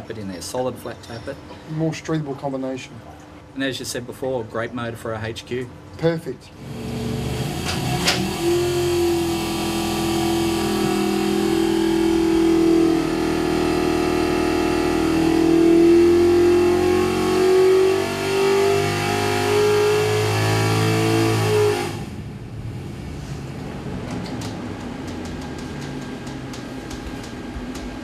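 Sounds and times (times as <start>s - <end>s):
engine running on dynamometer: 6.6s - 28.0s.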